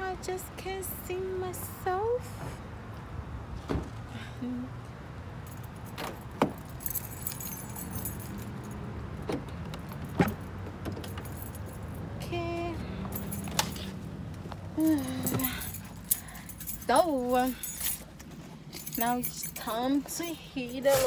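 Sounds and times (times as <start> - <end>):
keys jangling: 5.4 - 12.1, 13.1 - 14.0, 14.8 - 21.0.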